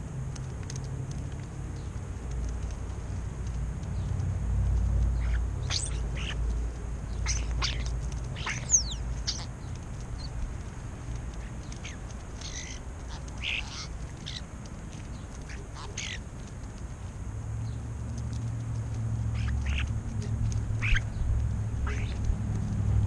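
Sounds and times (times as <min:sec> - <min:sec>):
low steady rumble: 0:00.0 - 0:23.0
starlings calling: 0:04.9 - 0:16.8, 0:18.4 - 0:22.7.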